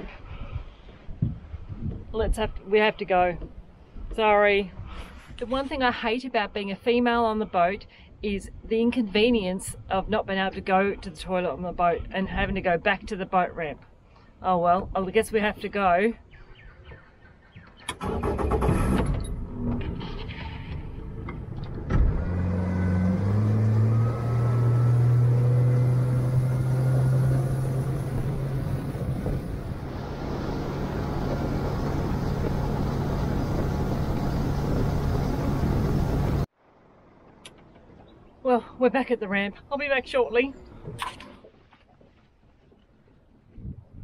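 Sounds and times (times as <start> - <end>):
wind: 0.0 - 44.0
water noise: 17.8 - 39.1
outboard motor revving: 20.6 - 36.5.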